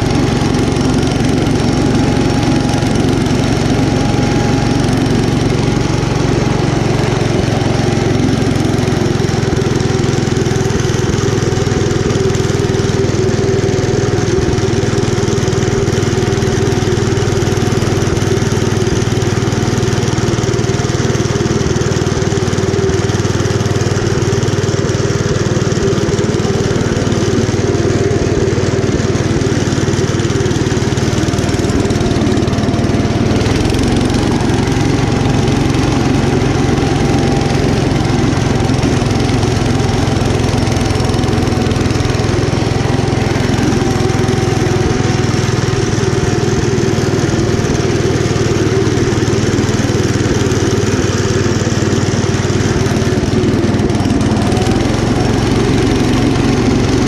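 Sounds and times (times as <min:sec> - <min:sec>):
small tractor engine running: 0:00.0 - 0:57.0.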